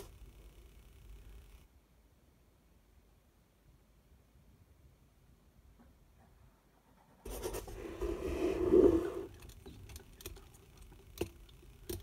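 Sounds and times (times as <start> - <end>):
pen scratching on paper: 7.3 - 9.3.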